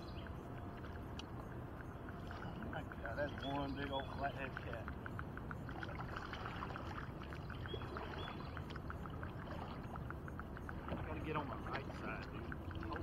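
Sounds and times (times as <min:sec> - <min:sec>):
water lapping against kayak hull: 0:00.0 - 0:13.0.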